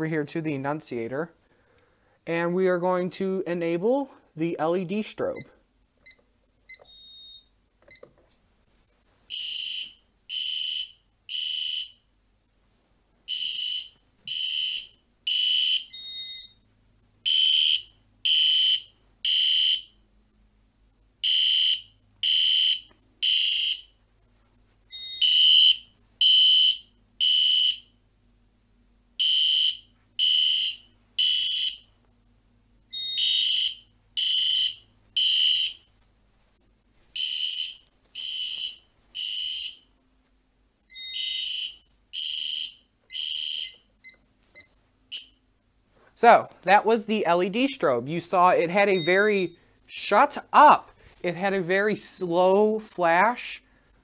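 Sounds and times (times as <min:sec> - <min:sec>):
fire alarm horn blasts: 0:09.3 - 0:12.0, 0:13.3 - 0:16.6, 0:17.2 - 0:20.0, 0:21.2 - 0:23.9, 0:24.9 - 0:28.0, 0:29.2 - 0:31.9, 0:32.9 - 0:35.9, 0:37.2 - 0:39.9, 0:40.9 - 0:43.8, 0:48.7 - 0:50.7.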